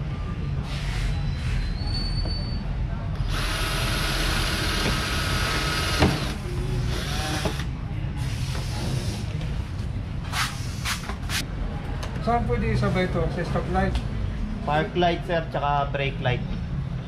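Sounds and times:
cordless drill running: 3.3s - 7.7s.

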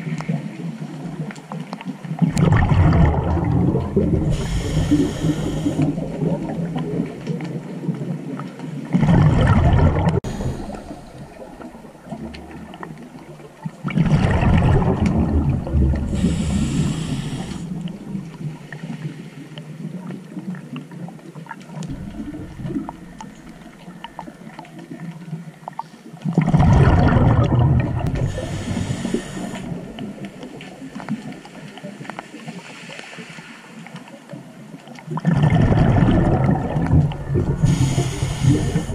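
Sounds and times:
regulator hiss and water noise: 0.0s - 38.9s
rush of exhaled bubbles: 2.1s - 19.2s, 21.7s - 25.3s, 26.1s - 33.4s, 35.1s - 38.9s
diver breathing through regulator: 4.0s - 6.3s, 10.2s - 11.9s, 15.9s - 19.4s, 28.1s - 30.4s, 37.5s - 38.9s.

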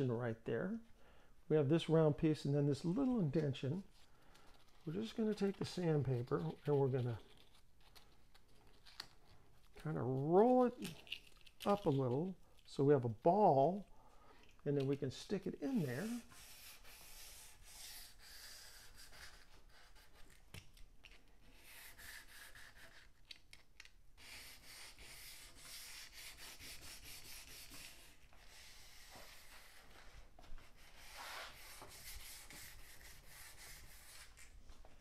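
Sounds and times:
sandpaper rubbing on wood: 15.7s - 20.2s, 21.5s - 23.1s, 24.2s - 30.0s, 30.6s - 34.4s.

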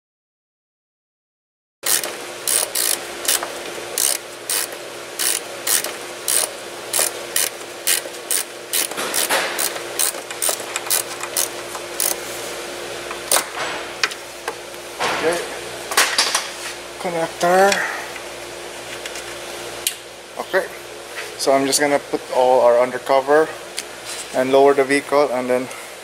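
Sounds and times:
hand ratchet clicking: 1.8s - 12.2s.

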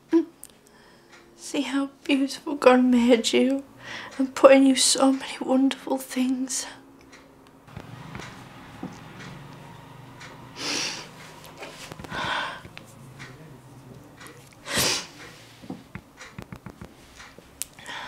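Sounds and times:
woman breathing heavily: 3.8s - 4.2s, 10.5s - 12.8s, 17.7s - 18.0s.

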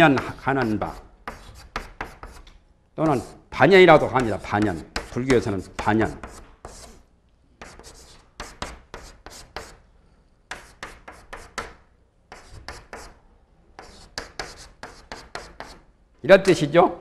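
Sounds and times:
chalk scratching on a blackboard: 0.0s - 2.4s, 3.0s - 3.4s, 4.0s - 9.8s, 10.5s - 13.2s, 13.8s - 15.9s.

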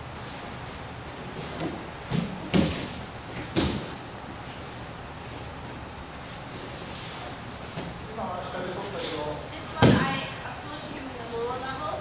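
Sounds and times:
body thudding and slapping on mat: 1.4s - 4.0s, 9.8s - 10.2s.

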